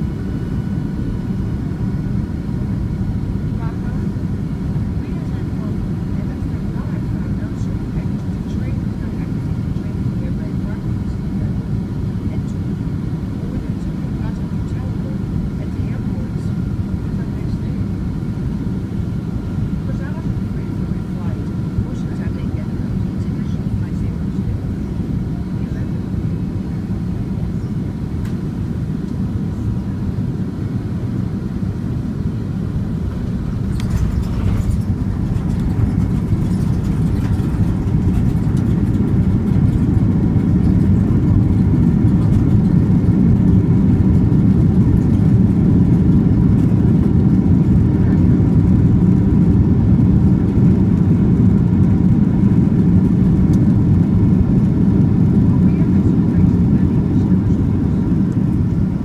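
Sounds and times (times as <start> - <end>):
jet engine deep rumble: 0.0 - 59.0
brief rattle: 33.6 - 38.8.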